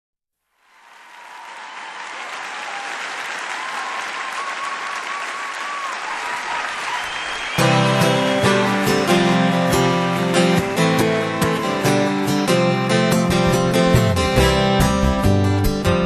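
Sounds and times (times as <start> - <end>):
audience applause: 0.6 - 10.1
acoustic guitar strumming: 7.6 - 16.0.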